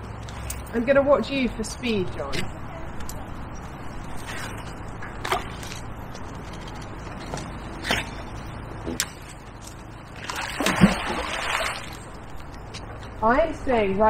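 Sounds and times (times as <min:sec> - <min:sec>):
steady low hum: 0:00.0 - 0:14.0
magnet splashing into water: 0:10.2 - 0:12.0.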